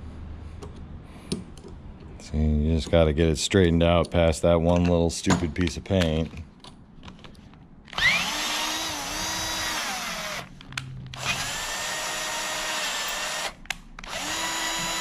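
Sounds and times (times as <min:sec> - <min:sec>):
cordless drill whining: 0:07.9 - 0:10.5, 0:11.1 - 0:15.0.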